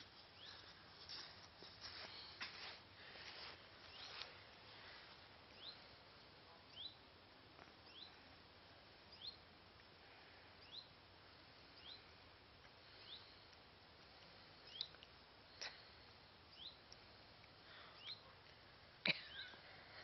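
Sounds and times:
outdoor hiss: 0:00.0 - 0:20.0
bird chirping: 0:03.9 - 0:04.3, 0:05.5 - 0:05.9, 0:06.7 - 0:07.0, 0:07.8 - 0:08.3, 0:09.1 - 0:09.5, 0:10.6 - 0:11.0, 0:11.6 - 0:12.2, 0:12.8 - 0:13.5, 0:14.6 - 0:15.0, 0:16.5 - 0:16.9, 0:17.7 - 0:18.3, 0:19.2 - 0:19.6.

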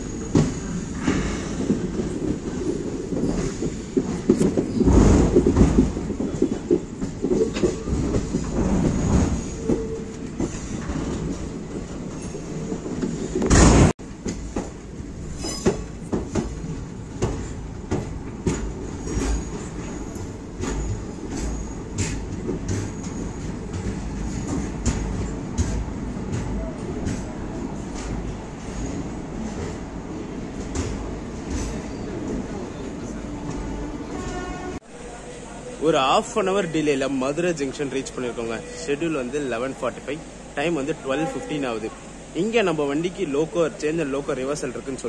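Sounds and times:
train wheels clacking on rails: 0:00.0 - 0:32.6
train rush: 0:00.0 - 0:45.0.

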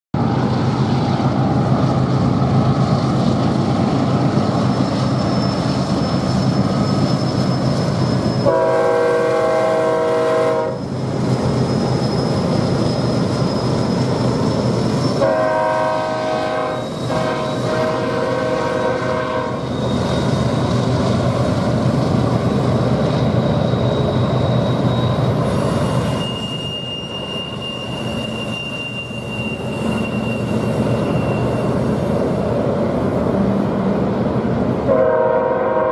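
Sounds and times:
freight train rumbling past: 0:00.2 - 0:35.9
high wheel squeals: 0:04.4 - 0:33.1
locomotive air horn: 0:08.4 - 0:10.8, 0:15.2 - 0:19.6, 0:34.9 - 0:35.9.

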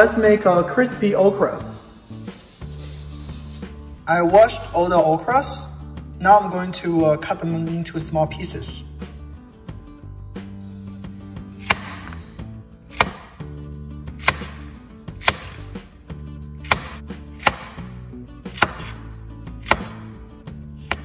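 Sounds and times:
knife chopping on cutting board: 0:11.6 - 0:13.4, 0:14.2 - 0:14.6, 0:15.2 - 0:15.6, 0:16.6 - 0:17.9, 0:18.5 - 0:19.0, 0:19.6 - 0:20.2.

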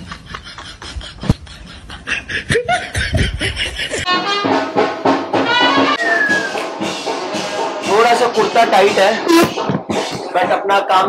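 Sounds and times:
person laughing: 0:00.0 - 0:04.1
clean music track: 0:04.0 - 0:11.0
music with quick beat: 0:04.1 - 0:11.0.

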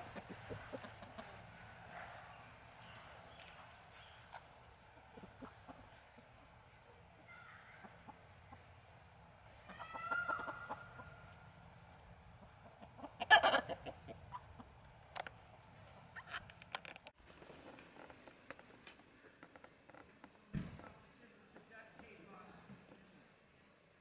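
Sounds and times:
hens clucking: 0:00.0 - 0:16.6
hen drawn-out call: 0:09.5 - 0:11.2, 0:13.1 - 0:14.4.

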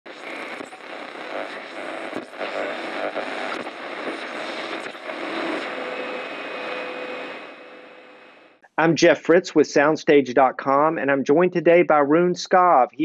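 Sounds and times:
static-like hissing: 0:00.1 - 0:08.4.

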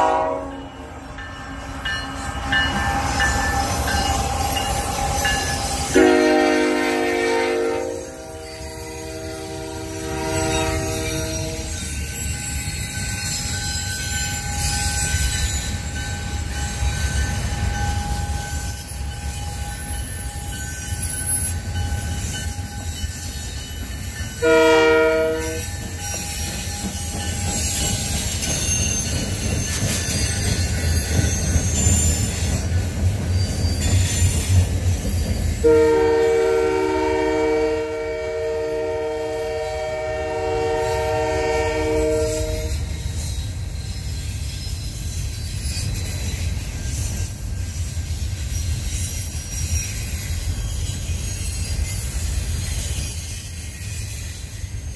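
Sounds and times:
locomotive horn blast: 0:00.0 - 0:00.9, 0:06.0 - 0:08.6, 0:09.3 - 0:11.7, 0:24.4 - 0:25.6, 0:35.6 - 0:42.7
freight train rumbling: 0:00.0 - 0:54.9
train wheel squeal: 0:00.0 - 0:54.9.

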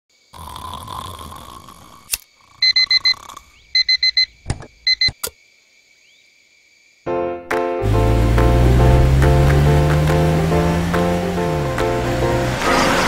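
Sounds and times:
alarm clock beeping: 0:02.6 - 0:03.2, 0:03.8 - 0:04.3, 0:04.9 - 0:05.2.

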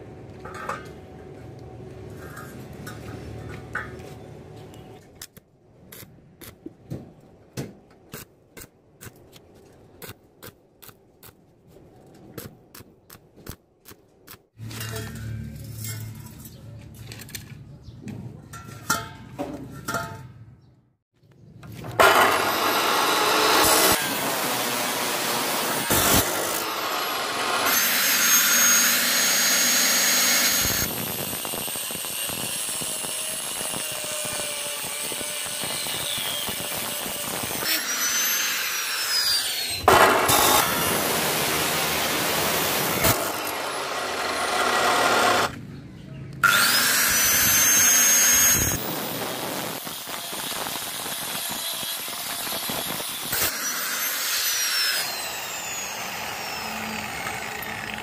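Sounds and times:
power tool motor whining: 0:22.0 - 0:45.5, 0:46.4 - 0:58.0.

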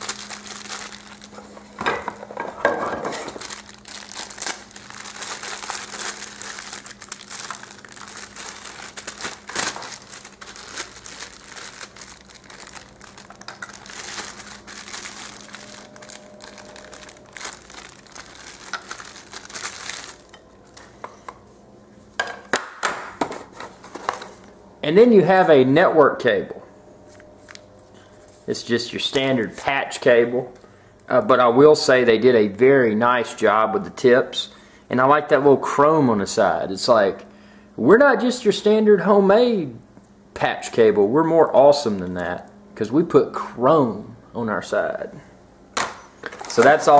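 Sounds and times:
plastic bag crinkling: 0:00.0 - 0:01.8, 0:03.0 - 0:20.8, 0:46.2 - 0:46.9.

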